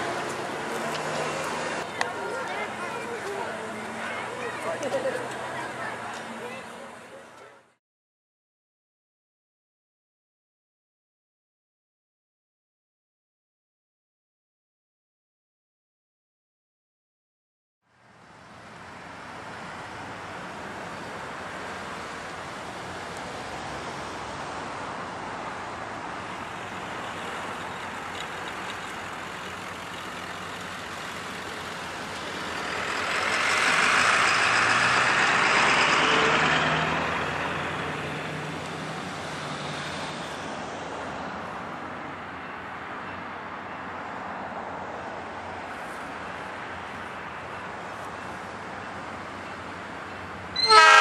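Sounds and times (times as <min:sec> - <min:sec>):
road traffic noise: 0:00.0 - 0:07.8, 0:17.8 - 0:51.0
vehicle driving past: 0:29.7 - 0:40.8.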